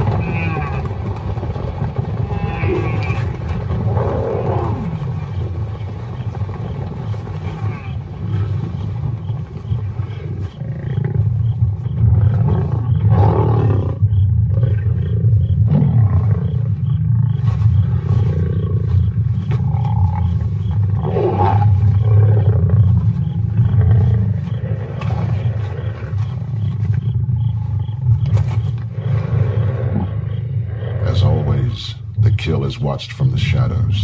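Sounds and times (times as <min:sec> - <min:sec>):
lions growling: 0:00.0 - 0:34.0.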